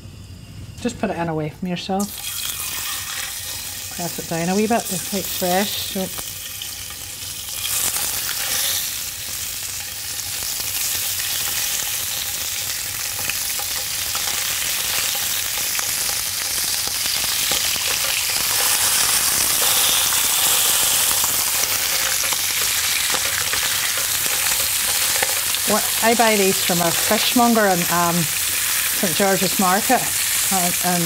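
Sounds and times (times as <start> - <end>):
fish sizzling in hot oil: 2.0 - 31.0.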